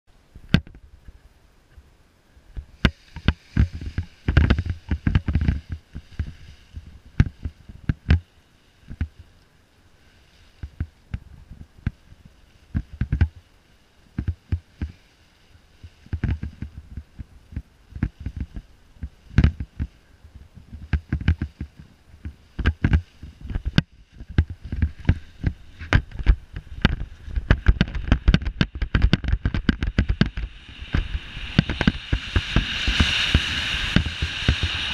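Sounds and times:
wind buffeting microphone: 0:02.5 - 0:09.3, 0:15.6 - 0:34.9.

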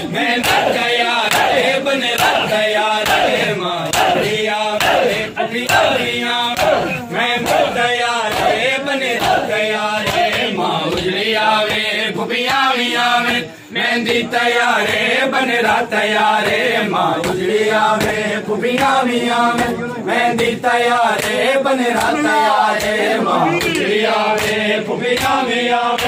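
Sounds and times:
crowd of men chanting: 0:00.0 - 0:26.0
hands slapping bare chests: 0:00.3 - 0:13.5, 0:16.3 - 0:26.0.

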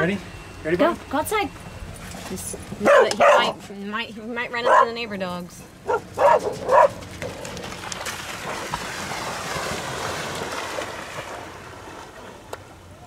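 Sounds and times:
splashing through shallow water: 0:06.2 - 0:13.0.

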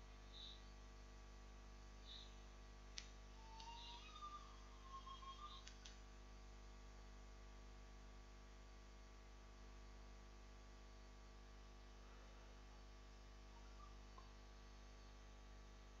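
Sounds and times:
faint mains hum: 0:00.0 - 0:16.0
faint short chirps: 0:00.2 - 0:00.8, 0:02.0 - 0:02.4.

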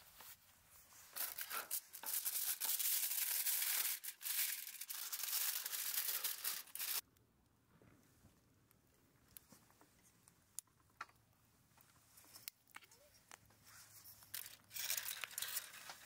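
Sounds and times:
aluminium foil crinkling: 0:00.9 - 0:07.0, 0:13.7 - 0:16.0.

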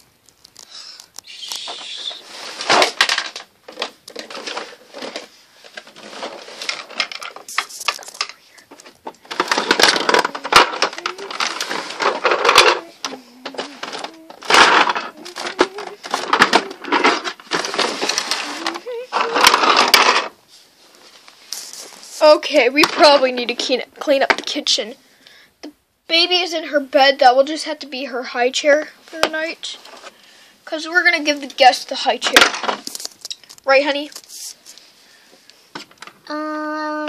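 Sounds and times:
plastic toys clattering: 0:00.3 - 0:20.4, 0:21.6 - 0:24.8, 0:30.8 - 0:34.4
rubbing close to microphone: 0:10.3 - 0:22.2, 0:34.1 - 0:34.8.

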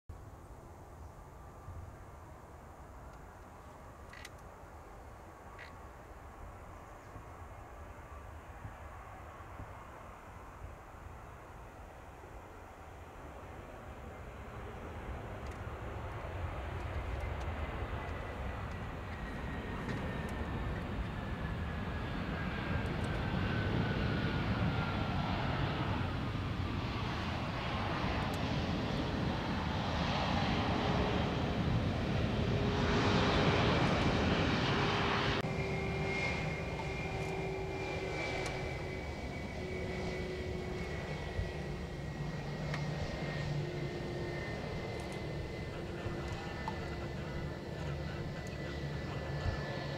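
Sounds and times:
jet engine roar and whine: 0:00.2 - 0:49.9.

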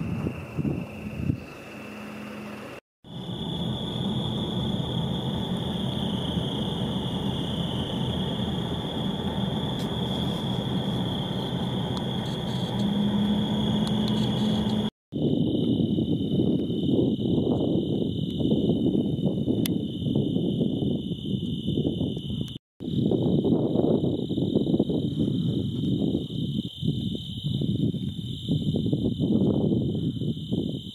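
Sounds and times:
road and engine noise: 0:00.0 - 0:14.9.

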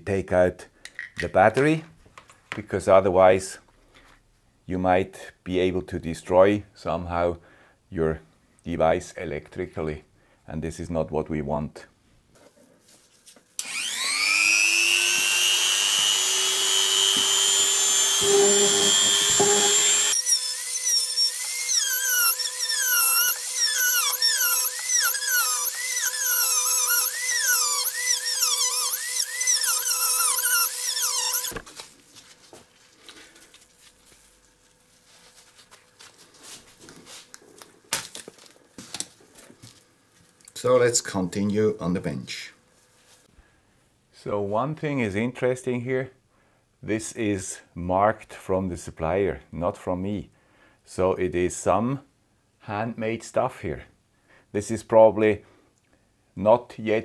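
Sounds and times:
disc cutting plastic: 0:13.6 - 0:31.6
rotary tool whining: 0:13.6 - 0:31.6.

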